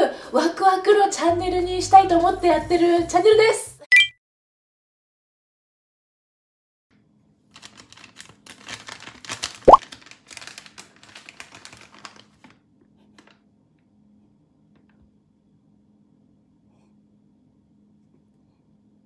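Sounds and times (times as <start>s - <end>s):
packaging crinkling: 7.5s - 12.5s.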